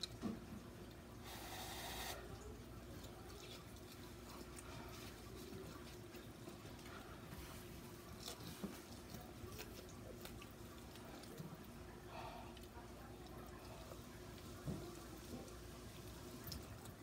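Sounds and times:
faint steady hum: 0:00.0 - 0:17.0
chewing and biting chicken: 0:07.9 - 0:11.8.

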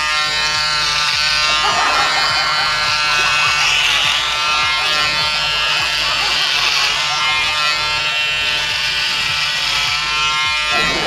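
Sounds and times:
electric hair clippers buzzing: 0:00.0 - 0:11.0.

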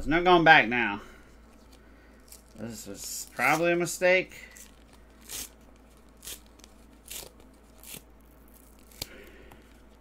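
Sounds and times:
card stock ripping: 0:02.2 - 0:03.8, 0:04.5 - 0:10.0.

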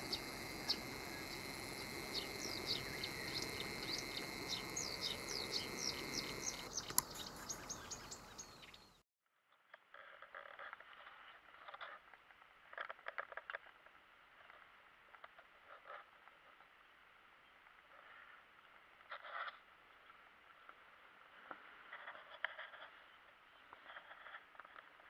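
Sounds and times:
small birds chirping: 0:00.0 - 0:09.0
steady outdoor hiss: 0:00.0 - 0:09.0.

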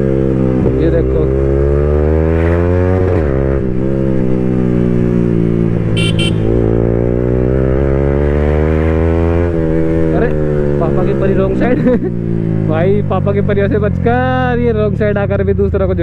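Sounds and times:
motorcycle engine accelerating: 0:00.0 - 0:15.4
short horn beeps: 0:06.0 - 0:06.6.

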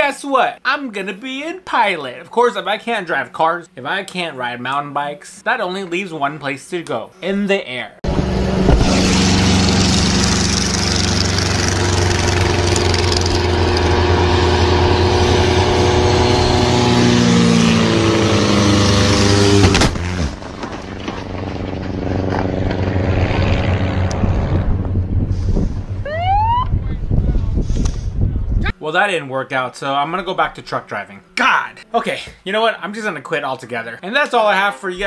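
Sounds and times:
light aircraft engine droning: 0:08.1 - 0:19.6, 0:20.4 - 0:26.2
sharp crack: 0:19.2 - 0:24.3.

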